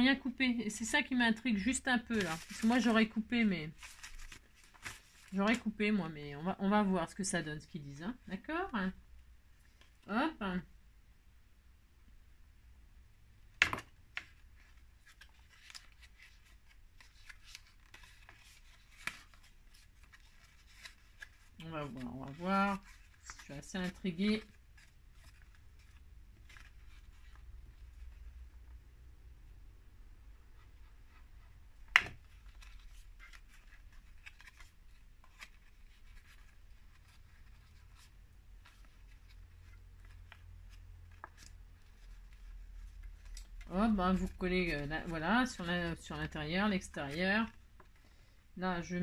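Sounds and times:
paper crinkling and rustling: 1.3s - 5.8s, 13.7s - 28.6s, 31.0s - 46.0s.

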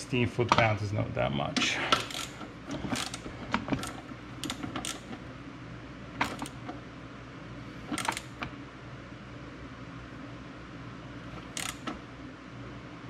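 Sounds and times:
nut threading onto metal bolt: 2.0s - 5.2s, 7.9s - 8.4s, 11.4s - 12.0s.

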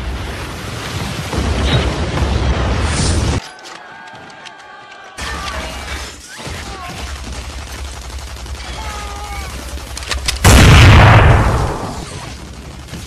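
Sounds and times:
gunshots: 5.2s - 13.0s
loud explosion: 10.4s - 12.2s.

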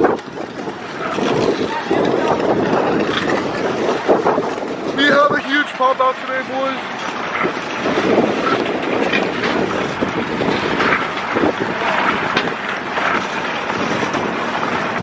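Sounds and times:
wind rushing over microphone: 0.0s - 15.0s
faint voices: 0.6s - 3.8s, 11.4s - 13.5s.

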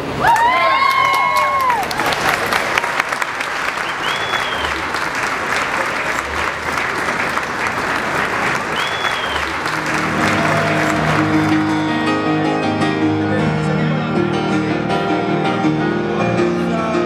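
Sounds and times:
crowd applauding: 0.0s - 14.6s
short whistle: 3.8s - 4.8s, 8.8s - 9.5s
grand piano music: 9.4s - 17.0s.

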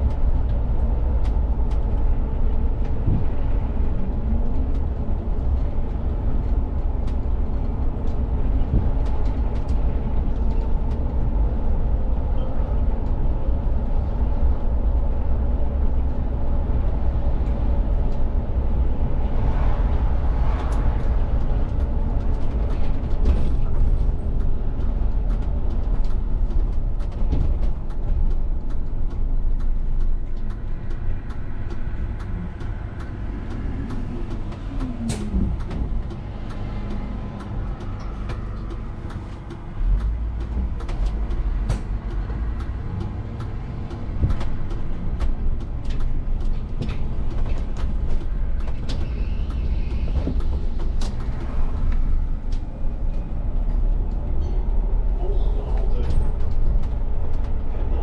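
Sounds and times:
bus engine and road rumble: 0.0s - 58.0s.

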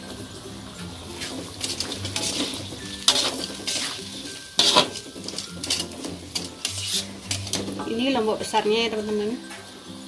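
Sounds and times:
light sizzle: 0.0s - 10.0s
metal spatula scraping a wok: 1.1s - 8.2s.

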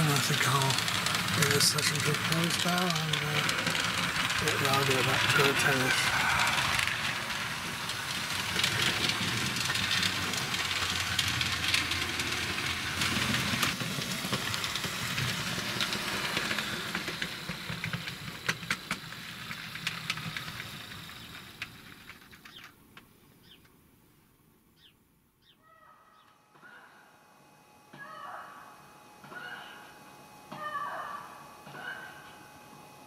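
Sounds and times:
model train rattling on track: 0.0s - 23.6s.

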